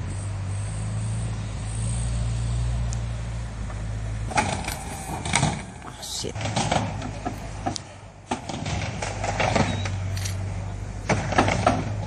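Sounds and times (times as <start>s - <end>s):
skateboard wheels rolling on wood: 3.6s - 10.1s, 11.0s - 12.0s.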